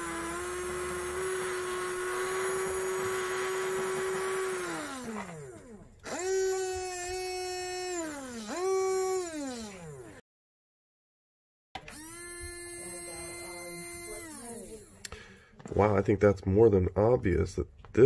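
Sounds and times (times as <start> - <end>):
electric motor whining: 0.0 - 10.2, 11.8 - 15.1.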